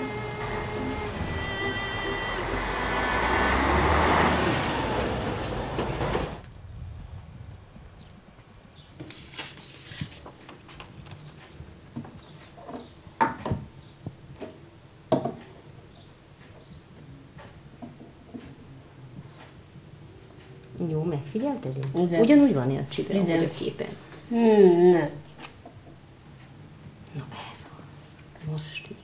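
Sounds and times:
string music: 0.0 - 5.6
vehicle driving past: 0.0 - 6.4
street traffic: 0.0 - 6.5.

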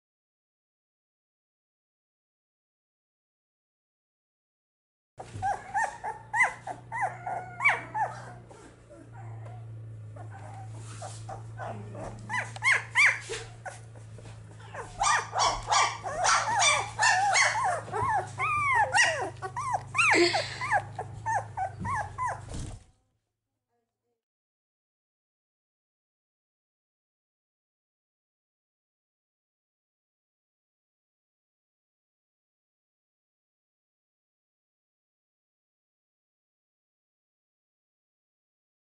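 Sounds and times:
puppies whimpering and squeaking: 5.2 - 22.8
steady low hum: 5.2 - 22.9.

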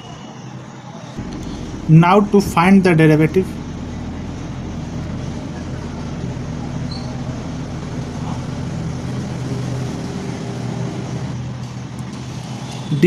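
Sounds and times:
faint low hum: 1.2 - 11.5
background rumble: 1.2 - 11.6.

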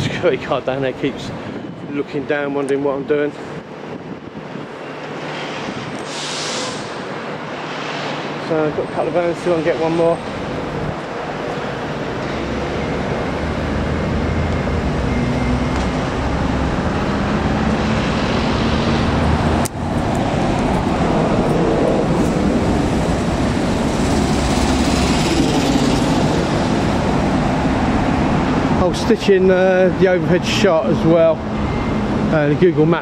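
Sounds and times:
cars and vans passing: 0.0 - 33.0
low vehicle hum: 10.2 - 28.9.

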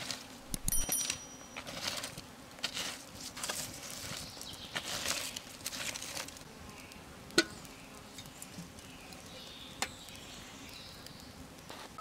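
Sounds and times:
stick stirring burning wood: 0.0 - 12.0
wood fire crackling: 0.0 - 12.0.

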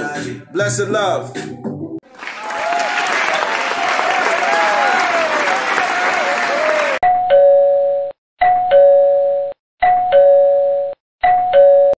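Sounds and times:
applause: 2.0 - 7.0
two-tone doorbell chime: 7.1 - 12.0.

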